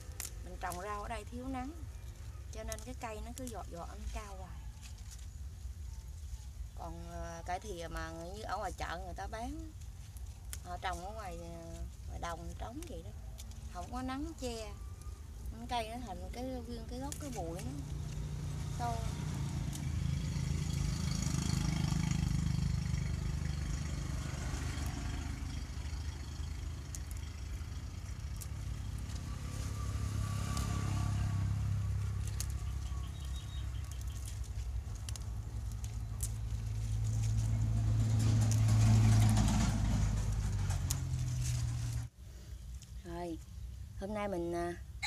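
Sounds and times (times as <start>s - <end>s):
low engine hum: 6.6s - 42.1s.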